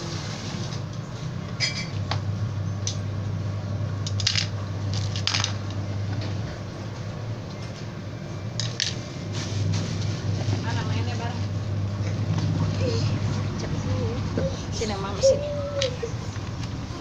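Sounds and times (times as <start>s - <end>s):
objects clicking and crinkling: 4.0s - 6.3s, 8.6s - 9.0s.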